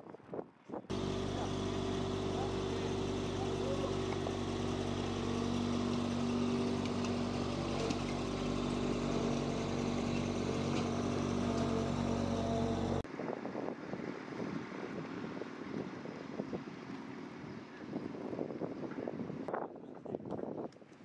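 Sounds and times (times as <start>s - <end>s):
engine humming: 0.9s - 13.1s.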